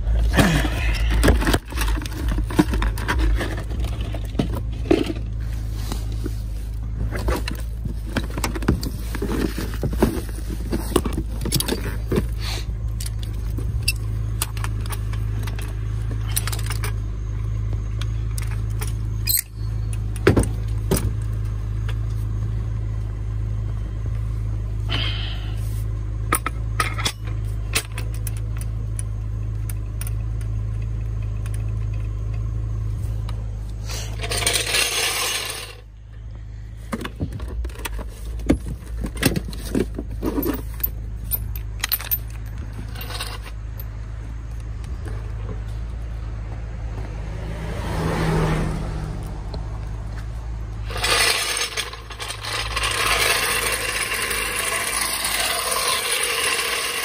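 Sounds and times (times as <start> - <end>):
steady low hum: 0.0 - 47.8
metal clinks and scrapes: 0.2 - 22.4, 26.2 - 36.0, 37.1 - 44.1, 50.8 - 57.0.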